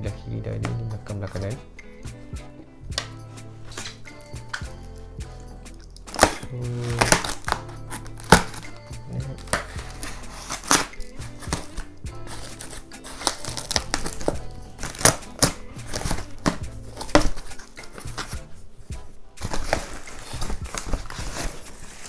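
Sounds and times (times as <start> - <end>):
background music: 0.0 - 22.0
foam packing wrap crinkling: 5.8 - 18.3, 19.4 - 22.0.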